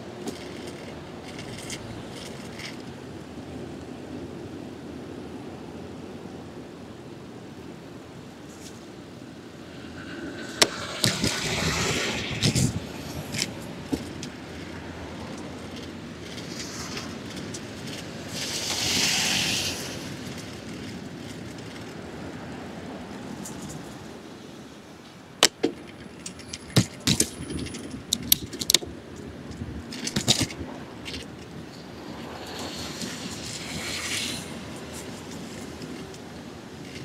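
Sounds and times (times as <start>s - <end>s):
bike rattling over bumps: 0.0s - 3.2s, 9.8s - 24.2s, 25.4s - 37.0s
tyre and wind noise: 0.0s - 37.0s.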